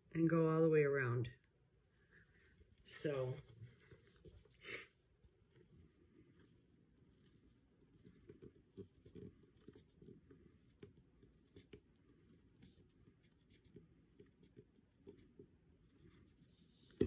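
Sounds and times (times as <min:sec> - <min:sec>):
marker scratching on plastic: 0:06.4 - 0:17.0.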